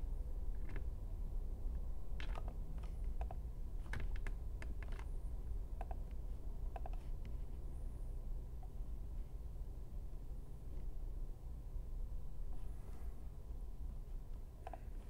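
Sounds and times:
low hum: 0:00.0 - 0:15.0
keyboard and mouse clicks: 0:02.1 - 0:05.1, 0:05.8 - 0:07.3, 0:14.6 - 0:15.0.

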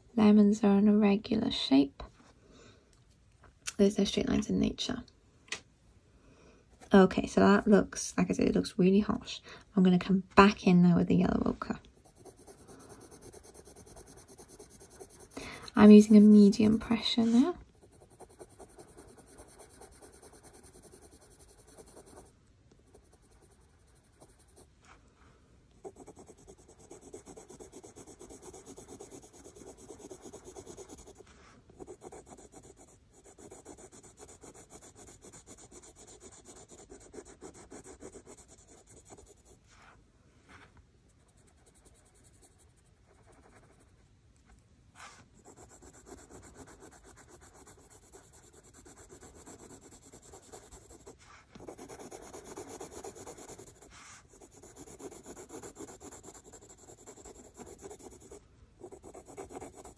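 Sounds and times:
coloured pencil scratching on paper: 0:11.3 - 0:24.9, 0:25.8 - 0:39.7, 0:41.1 - 0:43.9, 0:45.0 - 0:59.9.

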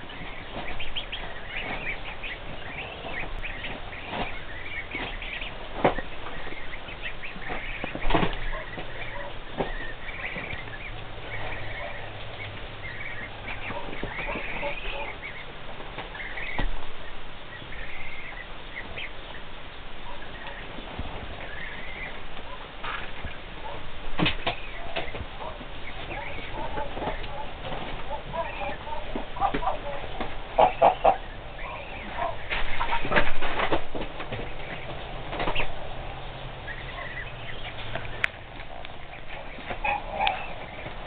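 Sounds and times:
goslings peeping: 0:00.0 - 0:41.0.

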